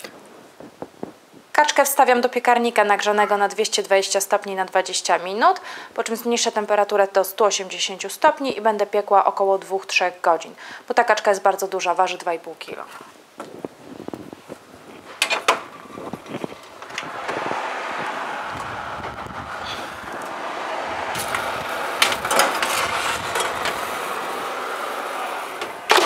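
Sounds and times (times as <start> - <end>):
steady rushing noise: 13.5 - 26.0
metal baking tray clattering: 21.2 - 26.0.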